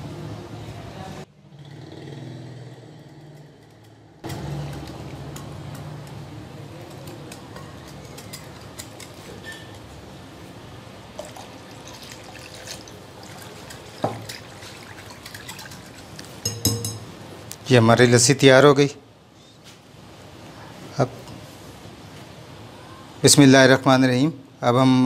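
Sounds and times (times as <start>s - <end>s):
whisk beating batter: 11.2s - 16.5s.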